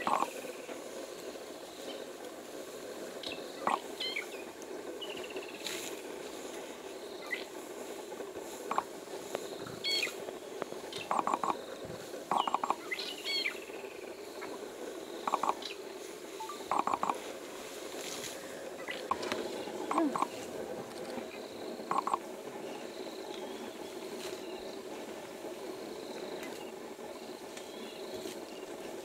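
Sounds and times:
birds chirping: 0:00.0 - 0:02.2, 0:03.0 - 0:05.9, 0:06.5 - 0:29.0
elephants rustling through grass: 0:00.0 - 0:29.0
steady background noise: 0:00.0 - 0:29.0.

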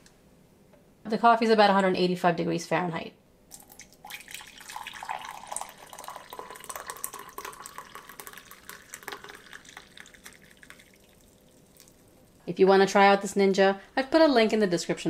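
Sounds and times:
coffee pouring into a mug: 0:03.5 - 0:12.4.

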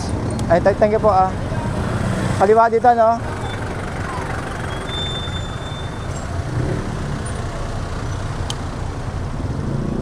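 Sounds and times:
traffic rumble: 0:00.0 - 0:10.0
thin high whistle: 0:04.7 - 0:06.2.

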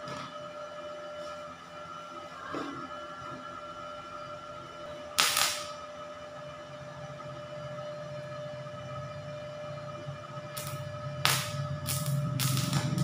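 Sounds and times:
welder high whine: 0:00.0 - 0:13.0
welding arc crackling: 0:05.2 - 0:05.8, 0:10.6 - 0:13.0.

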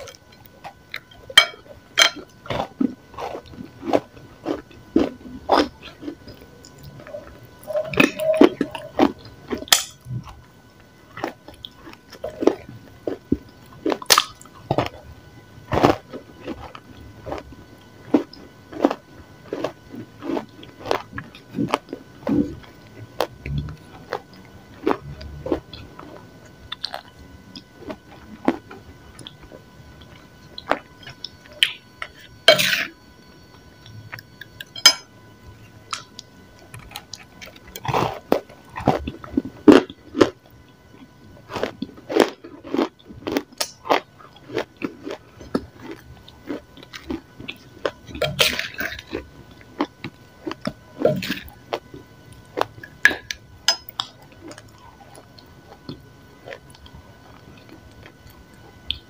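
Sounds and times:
crunchy chewing: 0:00.0 - 0:59.0.

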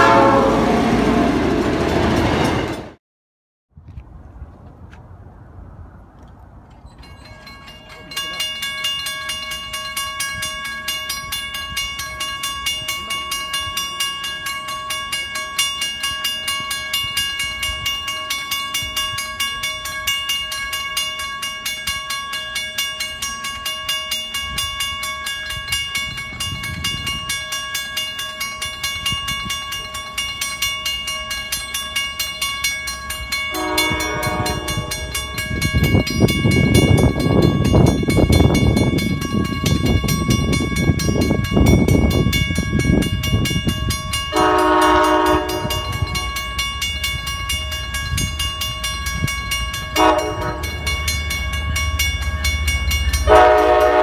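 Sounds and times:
train horn: 0:00.0 - 0:01.4, 0:33.5 - 0:35.4, 0:44.3 - 0:46.4, 0:49.9 - 0:51.0, 0:53.2 - 0:54.0
railroad crossing bells ringing: 0:00.0 - 0:03.0, 0:06.7 - 0:54.0.

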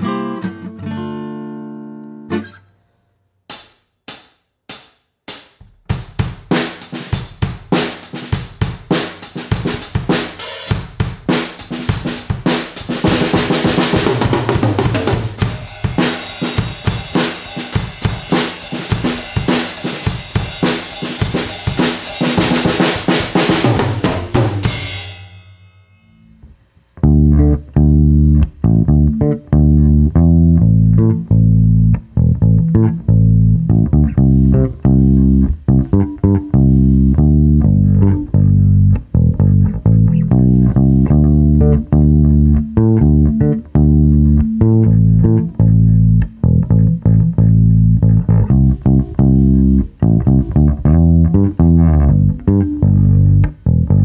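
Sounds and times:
drum kit playing: 0:03.5 - 0:25.9
bass guitar notes: 0:05.6 - 0:54.0.

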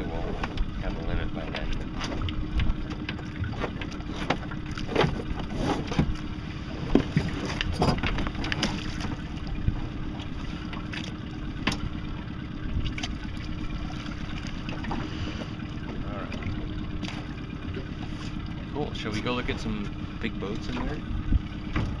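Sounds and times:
steady low hum: 0:00.0 - 0:22.0
knocks against boat hull: 0:11.6 - 0:11.9, 0:20.8 - 0:22.0
wind buffeting microphone: 0:19.3 - 0:22.0.

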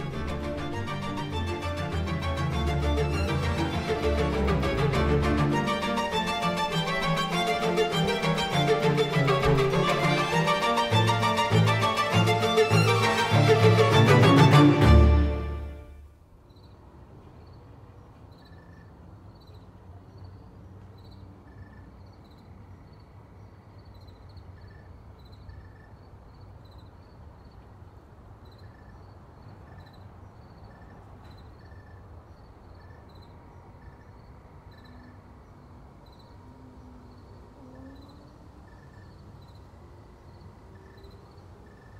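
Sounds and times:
insects chirping: 0:18.3 - 0:41.9.

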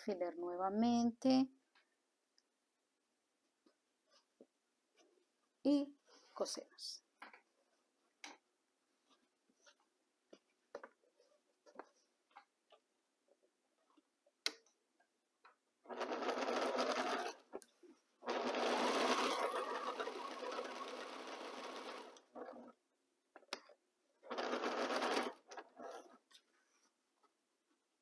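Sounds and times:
sewing machine stitching: 0:15.9 - 0:17.6, 0:18.2 - 0:22.8, 0:24.2 - 0:26.2.

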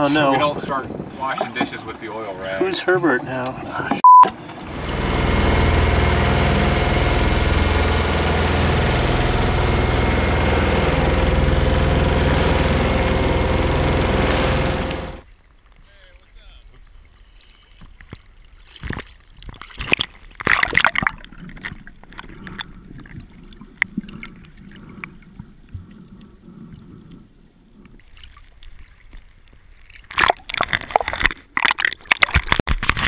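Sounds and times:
water sloshing and splashing: 0:00.0 - 0:33.0
muffled underwater gurgle: 0:18.8 - 0:33.0.

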